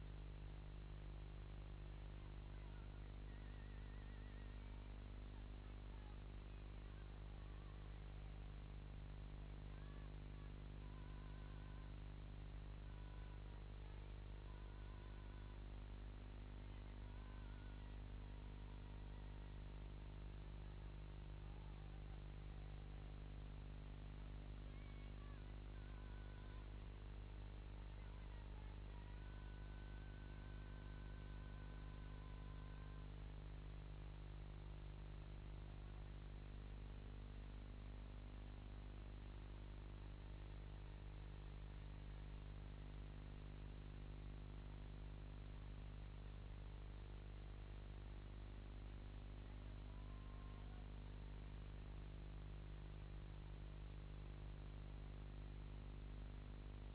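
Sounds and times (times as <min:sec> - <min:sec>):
low electrical hum and hiss: 0:00.0 - 0:56.9
faint wavering whistle: 0:02.6 - 0:04.8.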